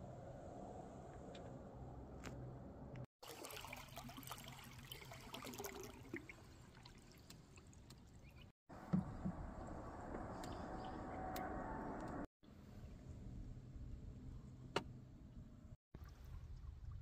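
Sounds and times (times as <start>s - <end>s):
small splashes: 3.2s - 8.5s
water lapping at hull: 3.2s - 9.7s.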